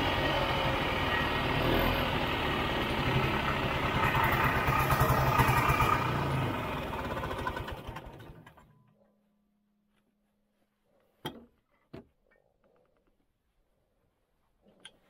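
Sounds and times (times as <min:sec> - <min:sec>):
snowmobile engine: 0:00.0 - 0:08.6.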